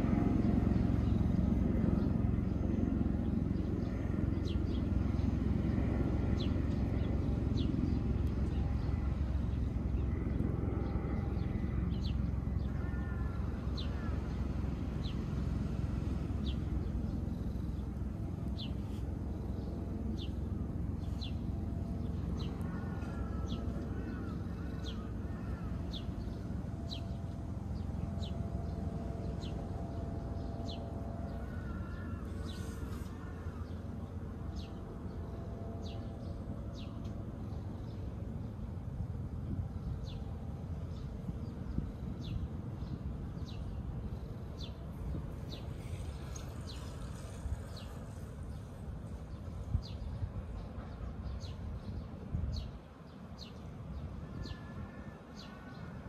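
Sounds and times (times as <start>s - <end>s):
crows cawing: 12.6s - 14.3s, 22.6s - 26.4s, 31.4s - 34.0s.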